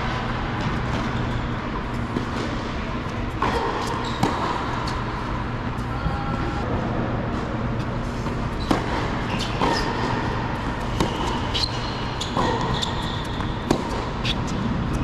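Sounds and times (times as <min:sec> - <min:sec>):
steady low hum: 0:00.0 - 0:15.0
shoes squeaking on court: 0:00.7 - 0:05.1, 0:08.5 - 0:14.6
tennis ball impacts: 0:08.6 - 0:14.4.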